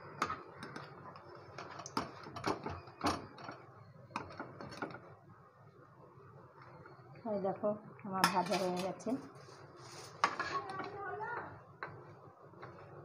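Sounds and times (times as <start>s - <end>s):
oil sizzling softly: 5.7s - 13.0s.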